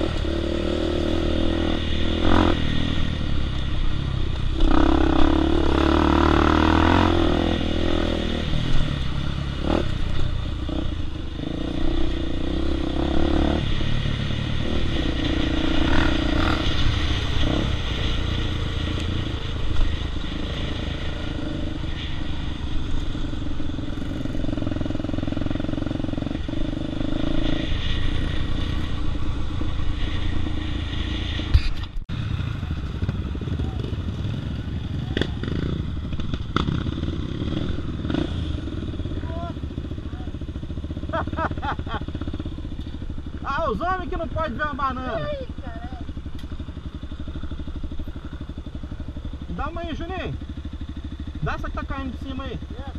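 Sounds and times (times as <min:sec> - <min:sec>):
dirt bike engine revving: 0:00.0 - 0:52.9.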